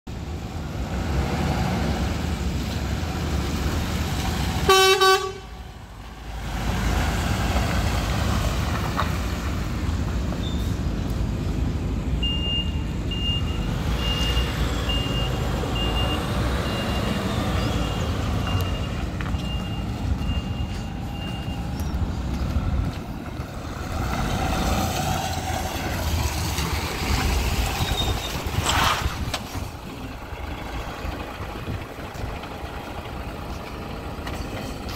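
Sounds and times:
horn blast: 0:04.7 - 0:05.6
reversing alarm beeping: 0:12.2 - 0:22.0
diesel truck engine idling: 0:29.6 - 0:34.9.

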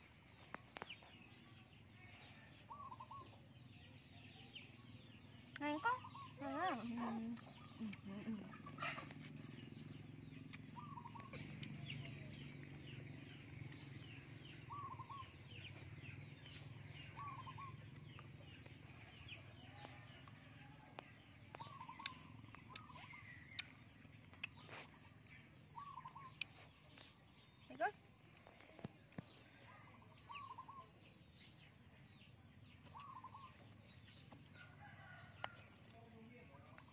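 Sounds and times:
faint birds chirping: 0:00.0 - 0:36.9.

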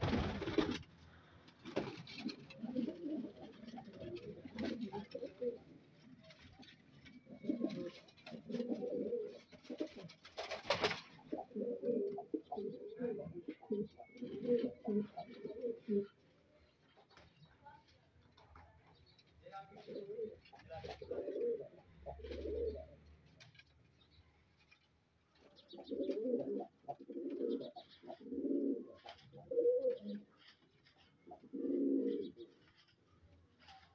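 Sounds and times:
rustling: 0:00.0 - 0:12.1, 0:22.1 - 0:33.9
pigeons cooing: 0:01.6 - 0:16.2, 0:19.7 - 0:23.2, 0:25.5 - 0:33.0.

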